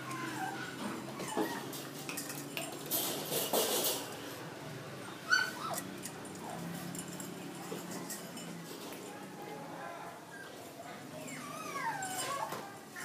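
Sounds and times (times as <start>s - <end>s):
dog yelping: 0.0s - 1.7s, 5.2s - 5.9s, 10.4s - 12.6s
dog whining: 0.0s - 1.9s, 5.1s - 5.9s, 10.3s - 13.0s.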